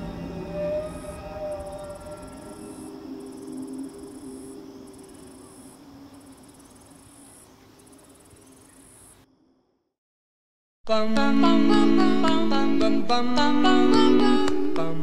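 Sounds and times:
low film score drone: 0:00.0 - 0:05.7
insects chirring: 0:00.0 - 0:09.7.

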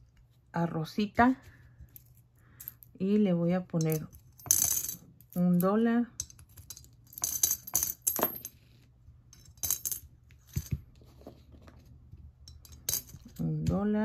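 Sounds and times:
coins clinking into coin bank: 0:03.8 - 0:08.6, 0:09.3 - 0:10.7, 0:12.5 - 0:13.5.

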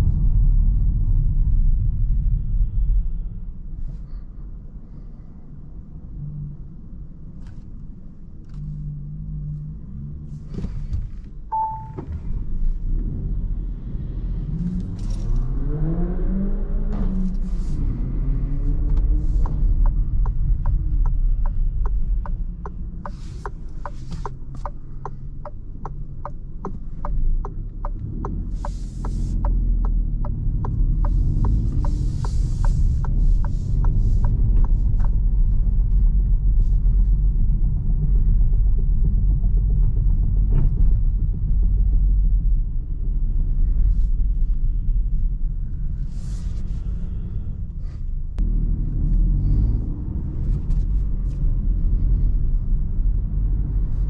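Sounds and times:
car engine and tyre rumble: 0:00.0 - 0:54.0
turn signal ticking: 0:11.5 - 0:12.2, 0:18.5 - 0:35.9.

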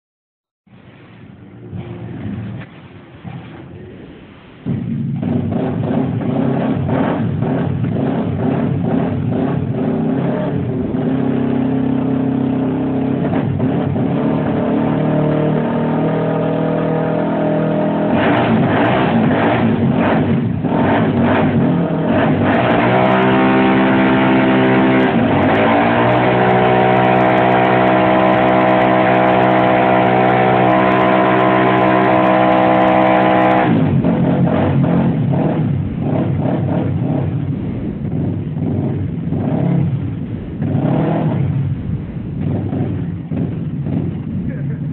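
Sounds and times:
quad bike engine revving: 0:04.6 - 0:44.9.

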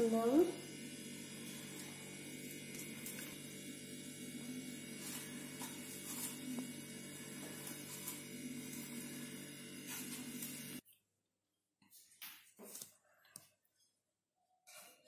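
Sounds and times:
low electrical hum: 0:00.0 - 0:10.8.

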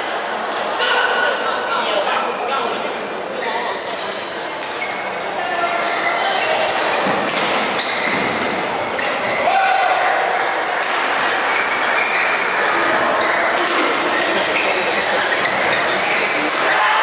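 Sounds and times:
hall background noise: 0:00.0 - 0:17.0
shoes squeaking on court: 0:04.8 - 0:09.4, 0:11.4 - 0:16.5
racket hitting shuttlecock: 0:13.5 - 0:14.2.

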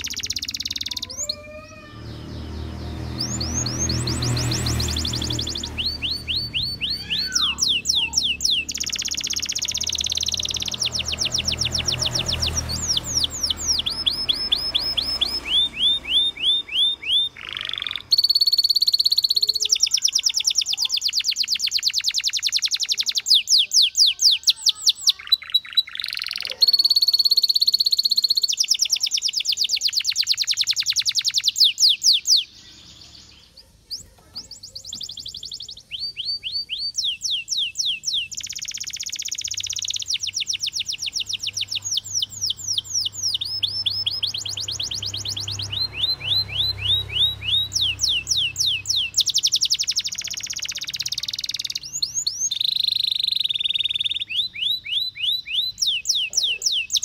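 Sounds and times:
canary singing trills: 0:00.0 - 0:57.0.

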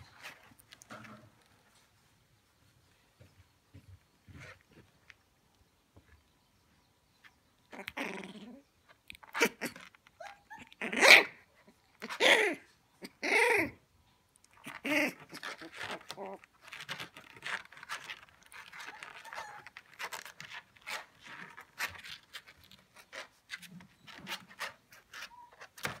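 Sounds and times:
puppies yelping and whining: 0:09.2 - 0:11.3, 0:12.0 - 0:13.8, 0:14.6 - 0:26.0
clicks and scratching in crate: 0:14.6 - 0:26.0.

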